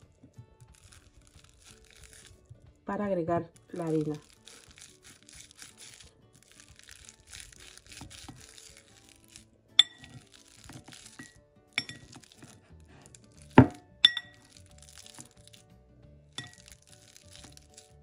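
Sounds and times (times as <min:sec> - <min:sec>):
masher squishing bananas: 0:00.0 - 0:02.8, 0:03.5 - 0:15.7, 0:16.4 - 0:18.0
masher clinking on glass bowl: 0:09.8 - 0:10.2, 0:10.8 - 0:12.5, 0:13.6 - 0:14.6, 0:16.4 - 0:17.5.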